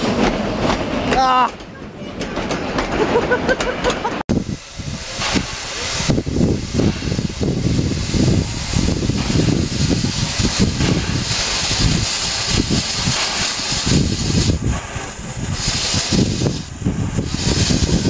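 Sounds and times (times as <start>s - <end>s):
steam engine low pulsing: 2.4s - 18.0s
steady steam hiss: 4.3s - 18.0s.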